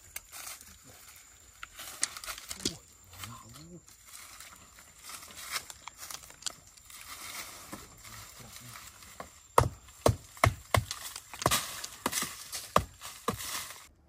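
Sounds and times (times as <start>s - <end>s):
footsteps crunching dry leaves: 0.0s - 13.9s
sharp loud knocks: 9.6s - 13.4s.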